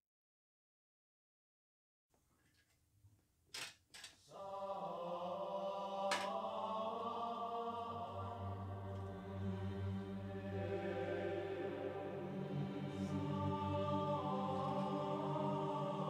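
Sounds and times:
choir-like chanting music: 4.2 - 16.0.

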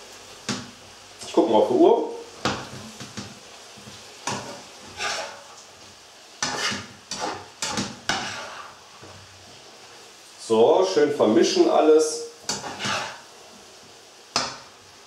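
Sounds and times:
faint sizzle of food frying: 0.0 - 15.0
metal spatula scraping a frying pan: 3.8 - 5.6, 6.4 - 9.6, 12.4 - 13.4.

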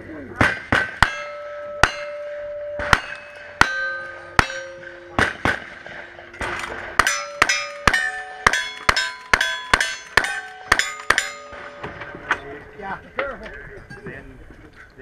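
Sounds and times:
gunshots: 0.4 - 12.3
steel target ringing: 0.5 - 12.7.

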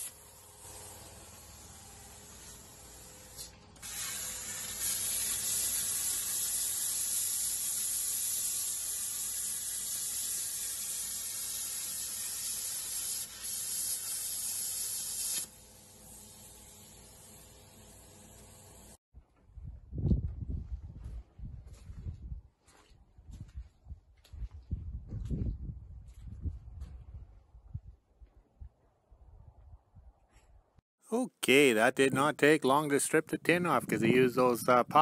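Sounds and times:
plasma cutter hissing: 0.0 - 19.0.

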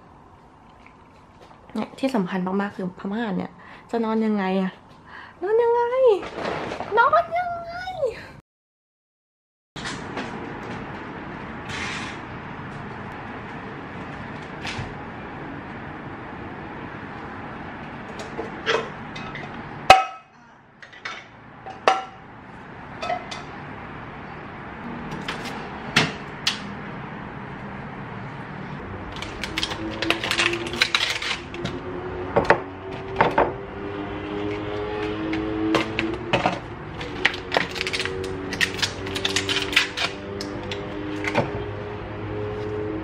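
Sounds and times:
dishes clinking and knocking: 23.0 - 23.5.

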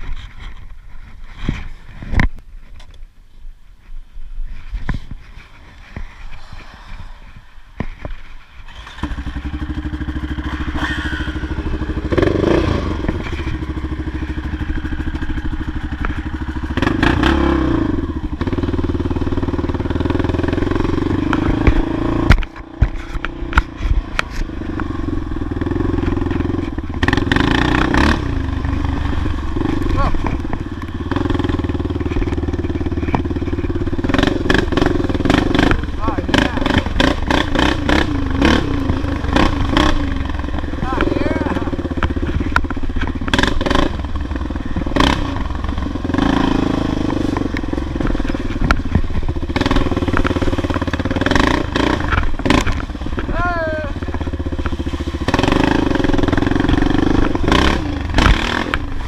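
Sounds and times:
quad engine revving: 8.6 - 59.0.

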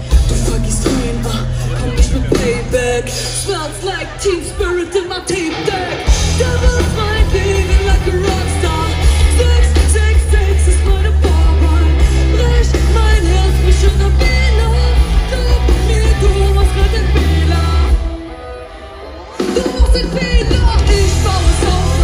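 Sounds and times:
live pop-rap band playing: 0.0 - 22.0
vocals: 0.0 - 22.0.

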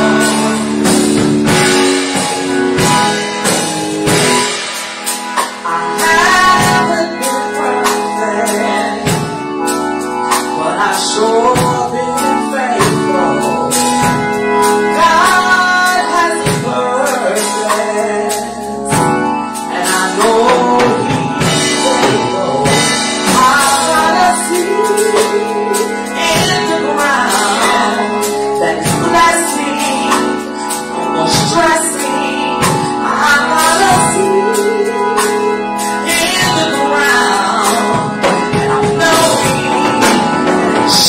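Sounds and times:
held keyboard chord: 0.0 - 41.0
drum and percussion hits: 0.1 - 6.9
singers' voices: 19.7 - 35.1, 36.0 - 41.0.

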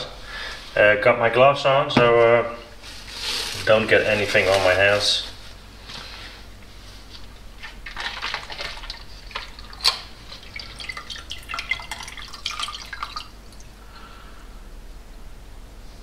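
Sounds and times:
liquid dripping and splashing: 7.6 - 13.8.

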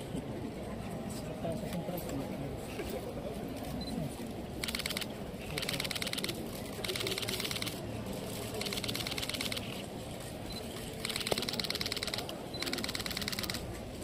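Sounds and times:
camera shutters clicking rapidly: 4.6 - 9.8, 10.9 - 13.7.

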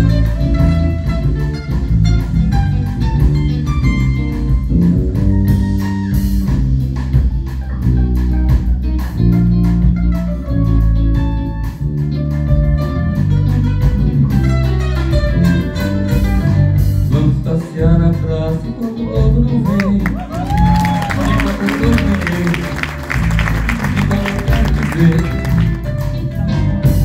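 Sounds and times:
drum kit: 0.0 - 27.0
electric bass: 0.0 - 27.0.

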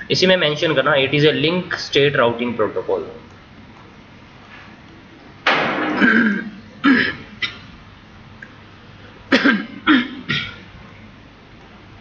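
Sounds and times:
man coughing: 5.9 - 7.7, 9.3 - 10.7.

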